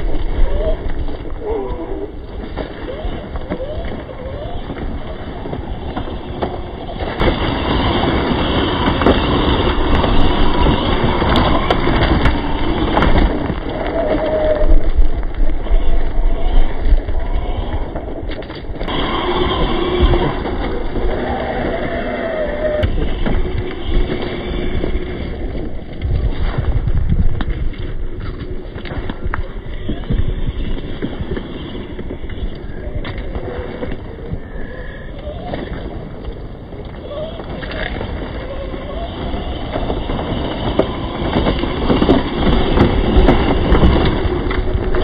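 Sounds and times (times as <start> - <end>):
rc truck on gravel rushing: 0.0 - 45.0
electric motor whine: 15.6 - 26.0.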